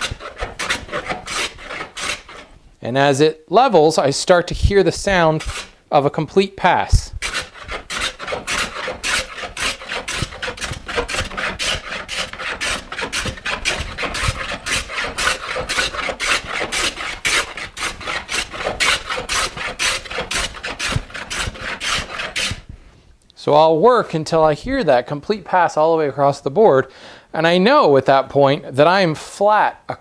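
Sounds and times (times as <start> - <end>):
hand plane rasping across wood: 0.0 - 2.5, 5.0 - 5.8, 7.2 - 22.7.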